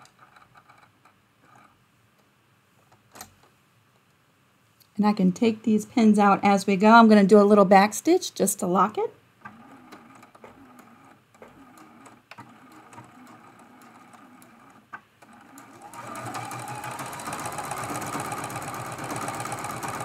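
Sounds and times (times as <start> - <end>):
sewing machine stitching: 9.4 - 20.0.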